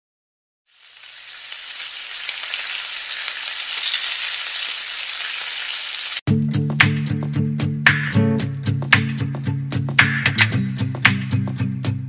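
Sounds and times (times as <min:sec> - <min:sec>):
food sizzling in a frying pan: 0:00.7 - 0:06.2.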